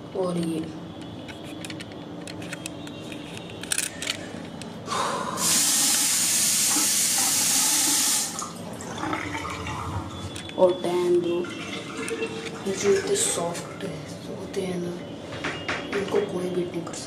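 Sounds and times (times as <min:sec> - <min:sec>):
water gushing from tap into sink: 0:05.4 - 0:10.4, 0:11.3 - 0:13.9.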